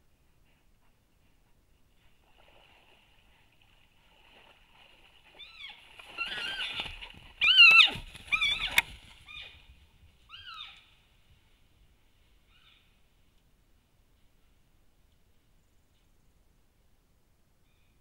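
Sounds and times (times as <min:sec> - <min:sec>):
muddy water splashing: 0:02.0 - 0:09.6
elk squealing calls: 0:05.4 - 0:09.6.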